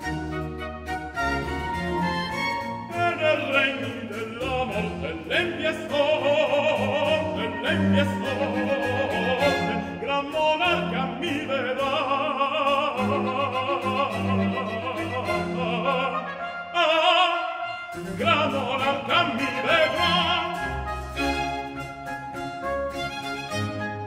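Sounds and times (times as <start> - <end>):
orchestra with strings: 0.0 - 24.0
opera singer with vibrato: 2.9 - 20.8.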